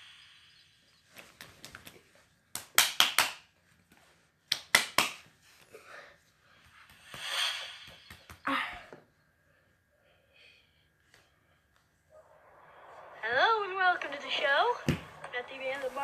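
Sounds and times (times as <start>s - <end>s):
whoosh: 12.1s - 16.0s.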